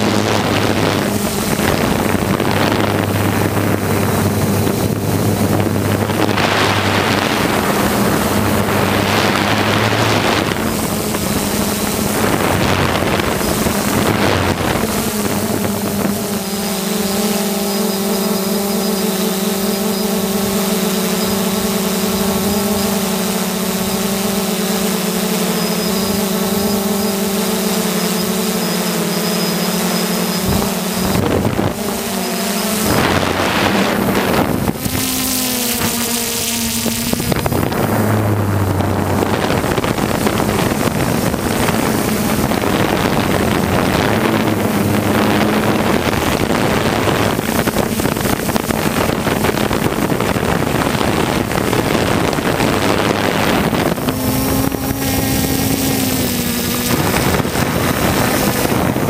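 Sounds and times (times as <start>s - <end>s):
drone propellers whining: 0.0s - 59.0s
wind buffeting microphone: 0.0s - 59.0s.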